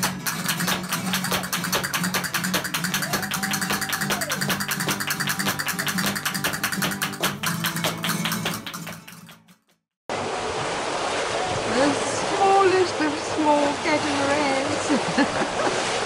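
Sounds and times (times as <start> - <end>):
acoustic guitar: 0.0 - 9.7
rapid percussive tapping: 0.0 - 9.8.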